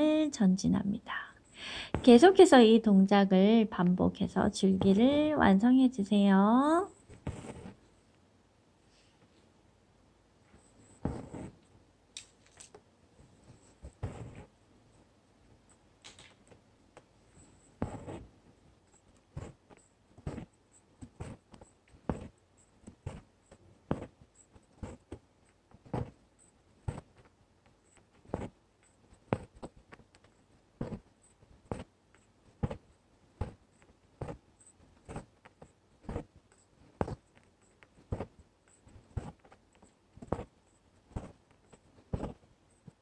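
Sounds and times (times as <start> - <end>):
needle punching through fabric: 1.7 - 2.5, 6.4 - 7.8, 10.9 - 11.6, 13.6 - 14.5, 17.7 - 43.0.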